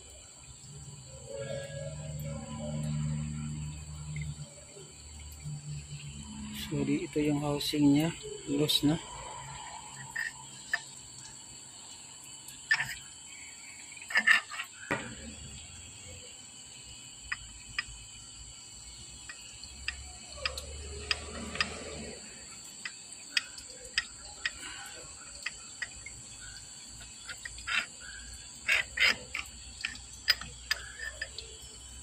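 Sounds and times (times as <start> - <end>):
high-pitched whine: 0.0 - 25.0
metal parts clicking and knocking: 12.7 - 13.1, 14.0 - 15.3, 22.8 - 26.1, 27.0 - 32.0.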